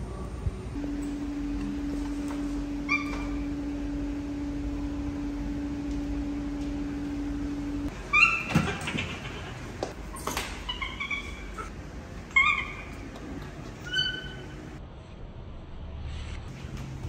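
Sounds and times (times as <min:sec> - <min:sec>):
steady low hum: 0:00.0 - 0:08.3
baby monkey high-pitched calls: 0:02.8 - 0:03.5, 0:08.1 - 0:09.1, 0:10.6 - 0:11.7, 0:12.3 - 0:13.0, 0:13.8 - 0:14.5.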